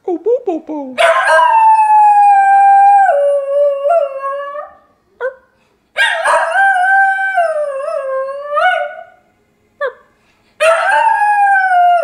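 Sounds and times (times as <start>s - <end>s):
dog howling: 10.6s - 12.0s.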